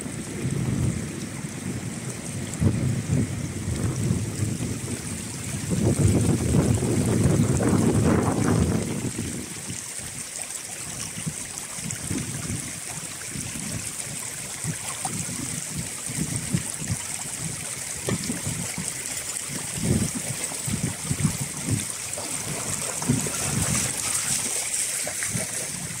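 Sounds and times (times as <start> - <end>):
river water rushing over pebbles: 0.0 - 26.0.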